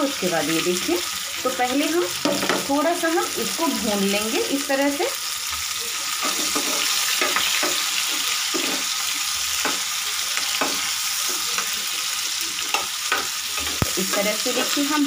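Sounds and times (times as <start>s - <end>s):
vegetables sizzling in hot oil: 0.0s - 15.0s
spatula scraping pan: 6.1s - 11.8s.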